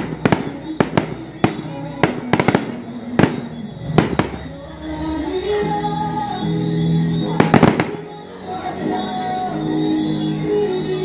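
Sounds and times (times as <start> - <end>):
fireworks bangs: 0.0 - 5.4, 7.2 - 8.2
music: 0.0 - 11.0.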